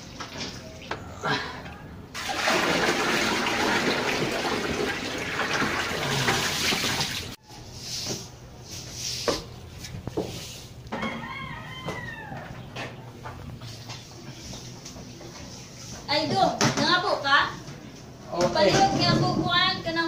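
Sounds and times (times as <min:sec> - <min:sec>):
tap water running into bucket: 0:02.2 - 0:07.4
broom swishes: 0:07.6 - 0:10.8.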